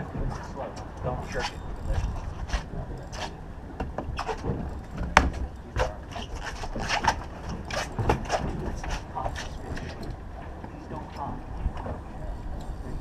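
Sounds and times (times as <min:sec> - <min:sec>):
fishing gear knocking and scraping: 0:00.0 - 0:13.0
footsteps on boat deck: 0:01.9 - 0:13.0.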